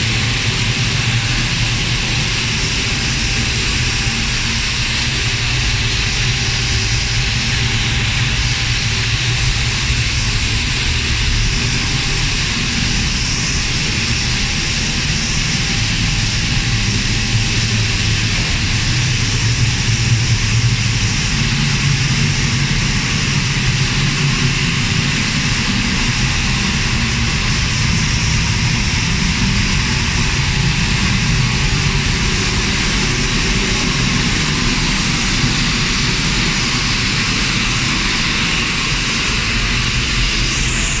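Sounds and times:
boiler burner and blower fan: 0.0 - 41.0.

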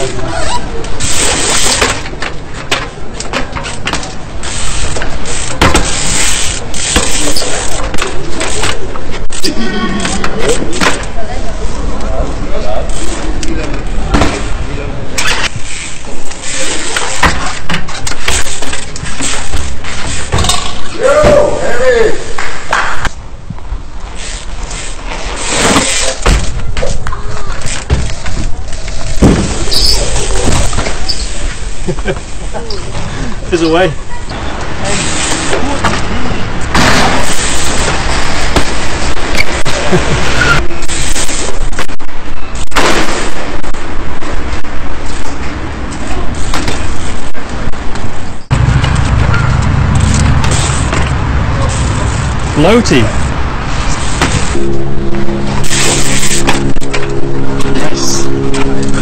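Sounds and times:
steady background noise: 0.0 - 59.0
bike tyres and frame landing: 0.4 - 9.4, 14.0 - 33.1, 34.8 - 52.4, 53.2 - 54.6
bicycle freewheel ticking: 4.4 - 7.8
loud rough rumble: 48.4 - 59.0
faint voices: 54.7 - 59.0.

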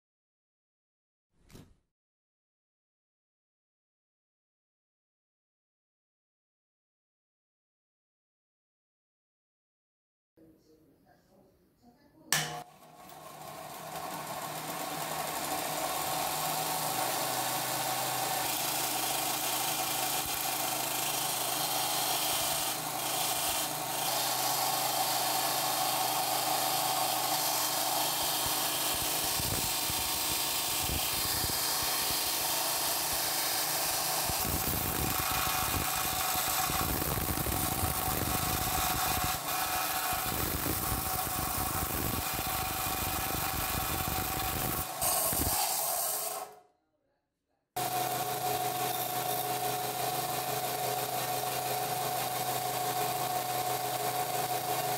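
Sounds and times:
switch click: 12.4 - 12.6
metal grinding on sanding belt: 13.2 - 46.5
motor whirring: 22.0 - 46.6.

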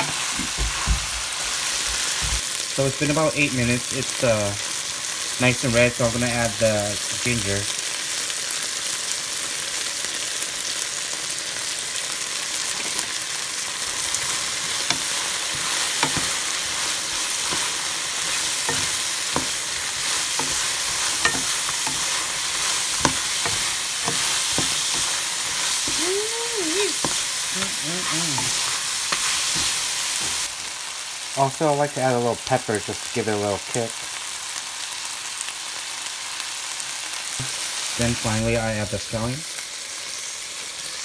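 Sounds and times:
crawdads sizzling in hot oil: 0.0 - 41.0
utensil knocking against pan: 21.2 - 22.1.

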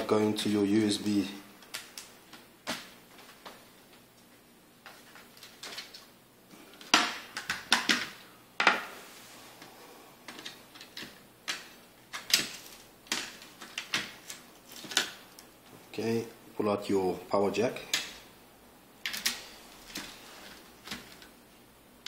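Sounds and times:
screwdriver and laptop parts clacking: 10.3 - 15.2.

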